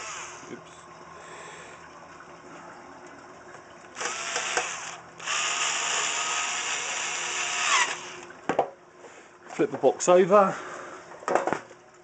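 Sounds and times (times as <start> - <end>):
electric screwdriver motor whining: 0.0 - 0.5, 4.0 - 8.3.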